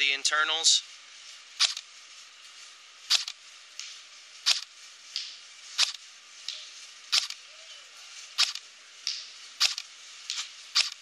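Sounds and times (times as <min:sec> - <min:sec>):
airsoft pistol shots: 0:08.4 - 0:08.6.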